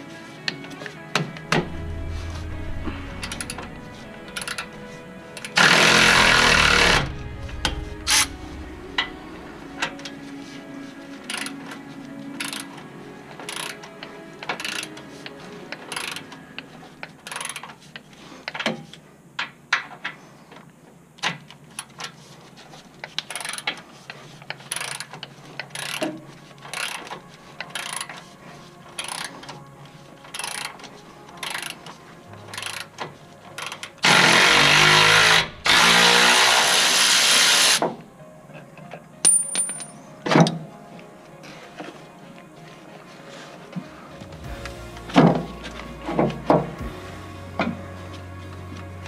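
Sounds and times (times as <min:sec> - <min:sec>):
metal tools clicking and clanking: 0:38.8 - 0:40.6.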